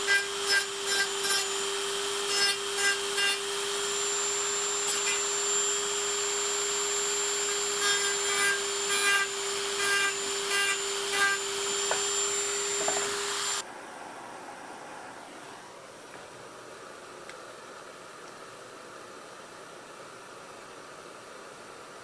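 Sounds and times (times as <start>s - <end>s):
rotary tool whining: 0.3s - 13.6s
disc grinding metal: 11.8s - 13.6s.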